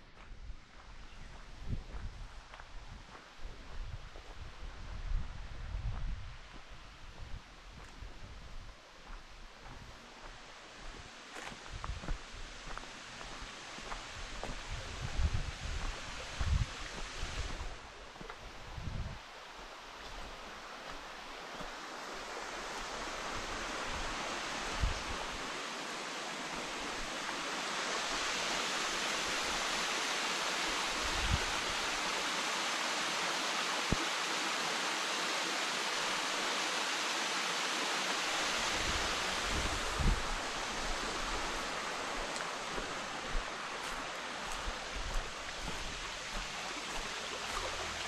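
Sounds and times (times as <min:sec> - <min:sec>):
waterfall rushing: 0:21.4 - 0:48.0.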